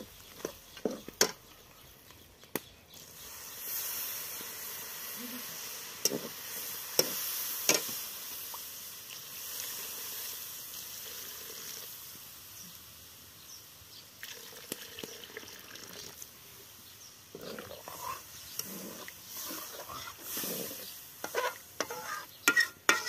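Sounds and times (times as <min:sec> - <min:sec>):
steam hissing from pot: 0:03.0 - 0:13.5, 0:17.4 - 0:23.0
stirring and scraping in pot: 0:03.2 - 0:08.0, 0:17.3 - 0:23.0.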